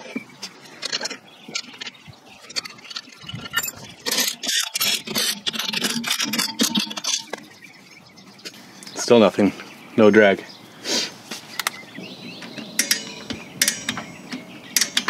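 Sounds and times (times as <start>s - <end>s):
nuts and tools clinking: 0.0s - 7.6s, 12.4s - 15.0s
metallic clicking and rattling: 0.4s - 7.5s, 12.5s - 15.0s.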